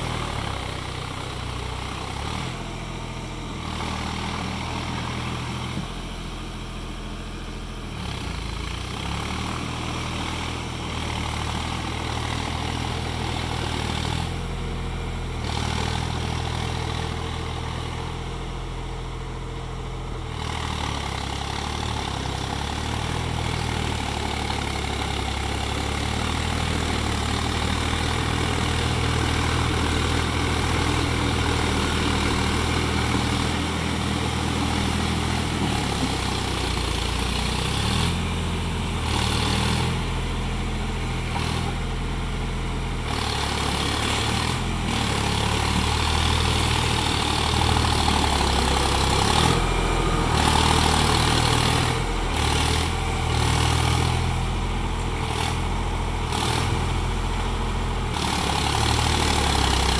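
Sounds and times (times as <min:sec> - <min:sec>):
tractor diesel engine running: 0:00.0 - 0:59.9
rotary tiller churning mud: 0:20.4 - 0:40.1, 0:43.0 - 0:54.5, 0:58.1 - 0:59.9.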